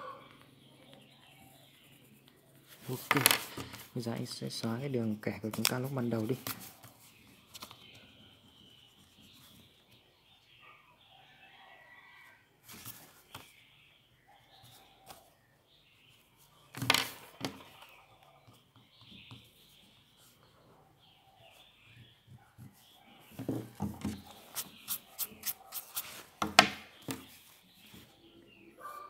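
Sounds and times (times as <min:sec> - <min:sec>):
eraser scrubbing paper: 0:24.2 - 0:26.4.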